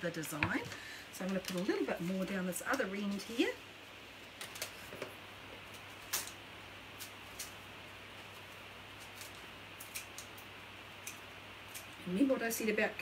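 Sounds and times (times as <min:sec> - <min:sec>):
faint steady hum: 0:00.0 - 0:13.0
leaves being handled: 0:01.2 - 0:03.4.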